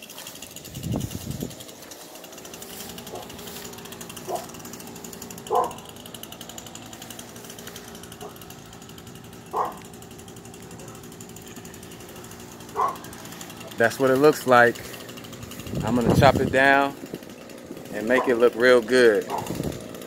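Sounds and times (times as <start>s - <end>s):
fast rattling background noise: 0.0s - 2.2s
dog barking: 4.3s - 4.5s, 5.5s - 5.8s, 9.5s - 9.9s, 12.8s - 13.1s, 19.3s - 19.5s.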